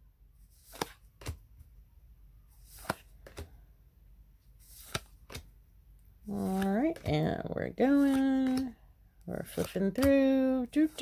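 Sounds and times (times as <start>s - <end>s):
cards being flipped: 0.5s - 1.5s, 2.6s - 3.6s, 4.5s - 5.6s, 6.3s - 8.8s, 9.4s - 11.0s.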